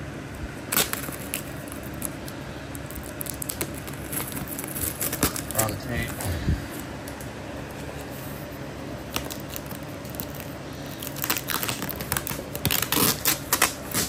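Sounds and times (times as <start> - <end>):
packing tape tearing: 0.6 - 6.1, 9.0 - 14.0
packaging crinkling: 0.6 - 6.2, 9.0 - 14.0.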